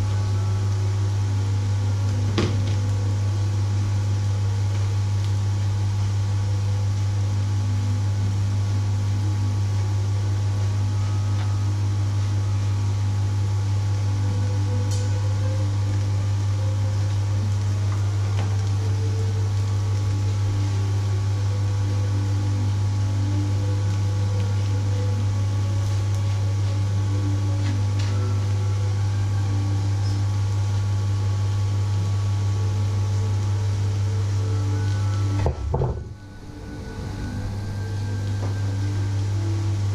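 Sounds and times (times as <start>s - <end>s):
appliance motor humming: 0.0s - 39.9s.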